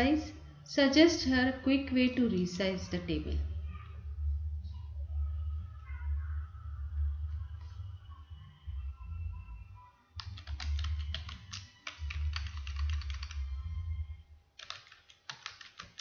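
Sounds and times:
typing on computer keyboard: 0:10.2 - 0:13.6, 0:14.6 - 0:16.0.

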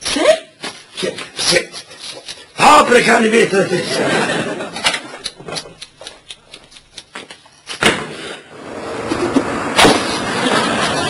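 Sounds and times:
thump: 0:07.8 - 0:08.4, 0:09.3 - 0:10.2.

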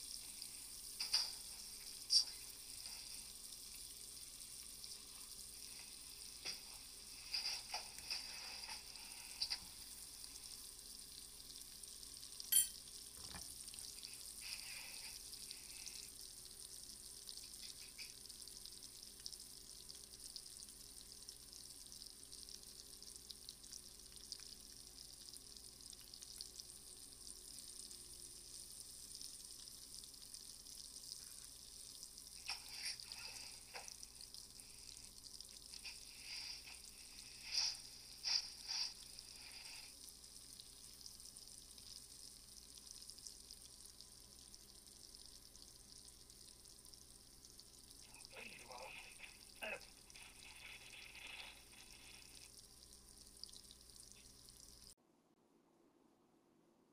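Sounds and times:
shrimp sizzling in frying pan: 0:00.0 - 0:16.5, 0:27.4 - 0:39.9
fork scraping a pan: 0:07.2 - 0:09.6.

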